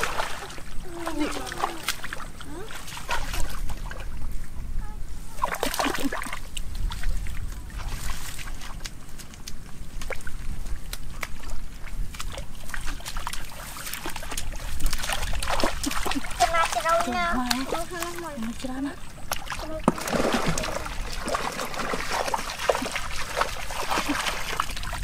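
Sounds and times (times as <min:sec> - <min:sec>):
hands splashing in wet mud: 0:07.8 - 0:18.3, 0:19.3 - 0:25.0
wet clicks: 0:08.8 - 0:11.5.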